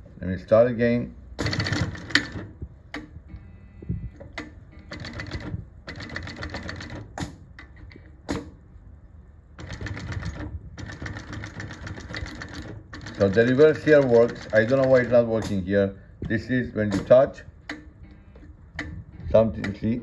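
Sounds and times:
sewing machine stitching leather: 0:01.4 - 0:02.6, 0:04.3 - 0:08.4, 0:09.6 - 0:15.6.

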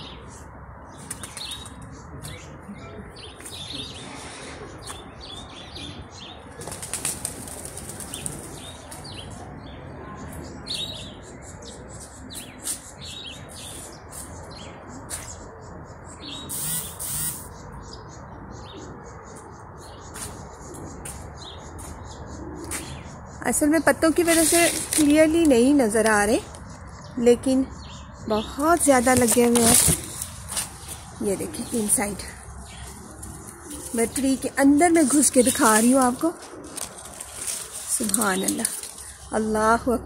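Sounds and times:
outdoor background noise: 0:00.0 - 0:40.0
small birds chirping: 0:00.0 - 0:40.0
leaves rustling: 0:24.2 - 0:25.9, 0:28.8 - 0:39.6.

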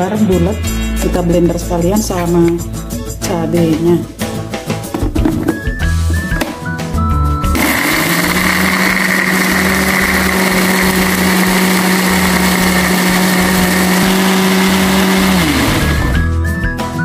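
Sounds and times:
blender motor running: 0:07.5 - 0:16.2.

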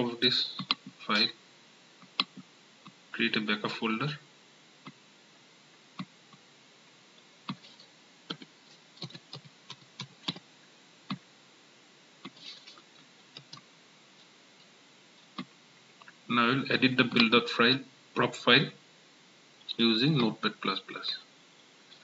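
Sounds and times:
computer keyboard clicks: 0:07.5 - 0:10.4.

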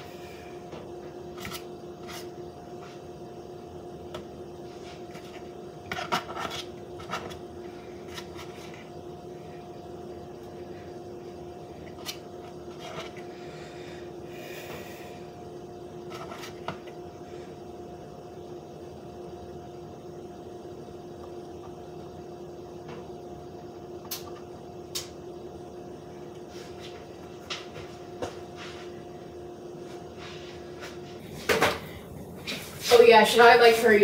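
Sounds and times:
steady hum: 0:00.0 - 0:34.0
fork scraping a paper plate: 0:01.4 - 0:02.4, 0:05.1 - 0:07.4, 0:11.9 - 0:13.2, 0:16.1 - 0:16.6.

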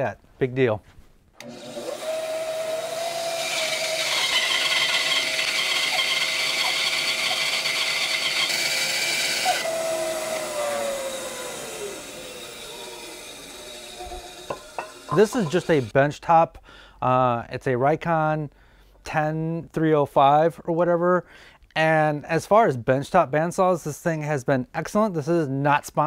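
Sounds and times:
bandsaw humming: 0:01.4 - 0:15.9
saw blade cutting wood: 0:01.4 - 0:15.9.

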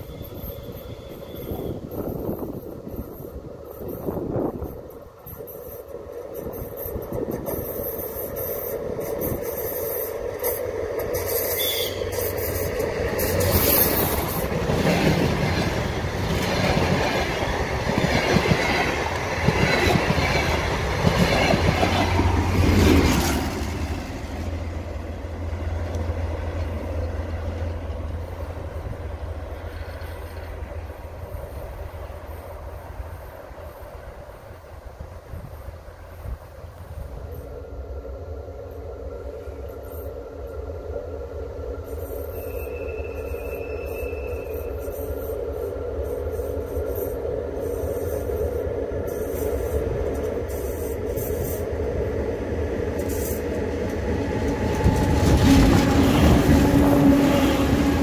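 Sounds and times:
diesel train engine drone: 0:00.0 - 0:58.0
distant train rumble: 0:00.0 - 0:58.0
train wheels clattering over rails: 0:02.0 - 0:24.2, 0:52.8 - 0:58.0.

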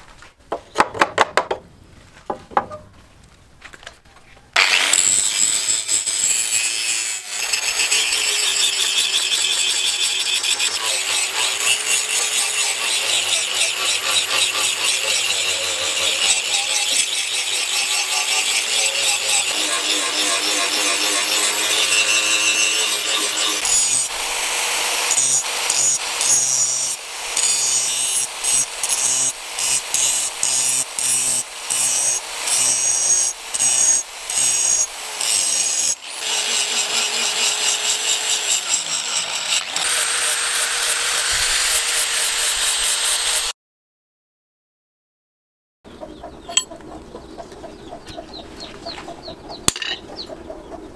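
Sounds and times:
angle grinder grinding steel: 0:04.6 - 0:43.5, 0:49.7 - 0:50.3.

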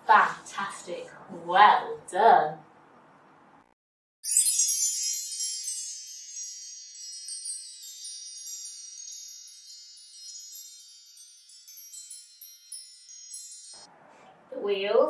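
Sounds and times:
wind chimes ringing: 0:04.2 - 0:13.9.

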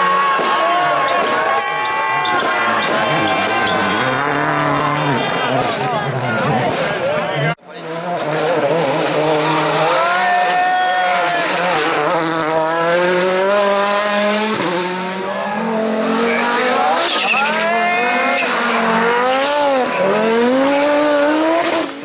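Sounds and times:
tyres squealing: 0:00.0 - 0:05.3, 0:16.2 - 0:20.1
rally car engines revving: 0:00.0 - 0:22.0.

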